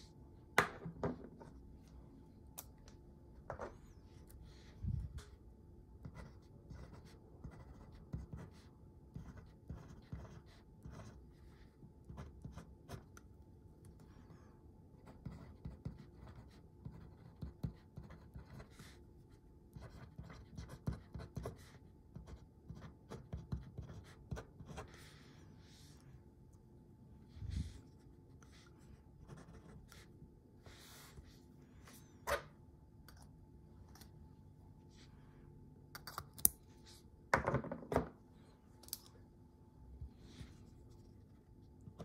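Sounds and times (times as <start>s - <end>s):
fountain pen scratching on paper: 6.0s - 13.1s, 15.0s - 19.0s, 19.7s - 25.8s, 28.4s - 30.1s.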